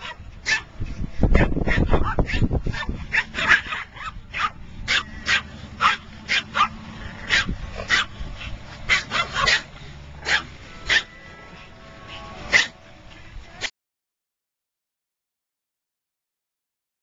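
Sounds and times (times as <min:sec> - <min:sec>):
small dog yapping: 0:08.9 - 0:11.0.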